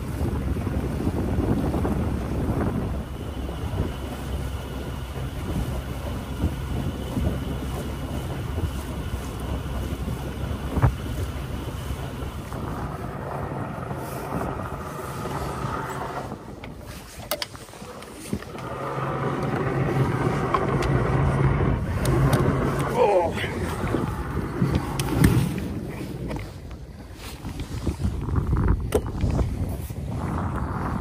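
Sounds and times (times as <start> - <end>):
water rushing around boat: 0.0 - 31.0
wind buffeting microphone: 0.0 - 31.0.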